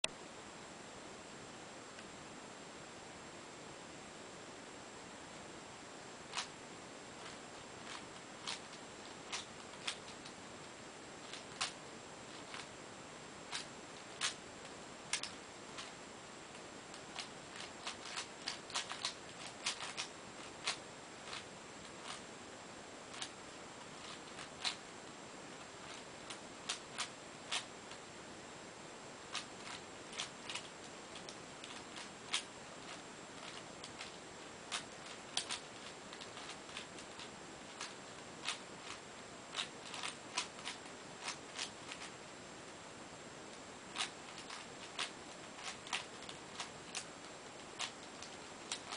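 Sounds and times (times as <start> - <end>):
faint steady hiss: 0.0 - 48.9
plastic puzzle layers clicking: 6.3 - 6.5, 7.2 - 10.4, 11.2 - 12.7, 15.2 - 15.9, 16.9 - 22.2, 24.0 - 24.8, 25.8 - 28.0, 29.3 - 42.1, 44.0 - 48.9.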